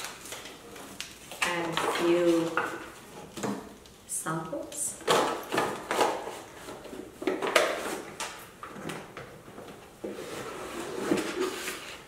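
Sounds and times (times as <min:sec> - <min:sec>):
paper packaging rustling: 0:00.0 - 0:03.8.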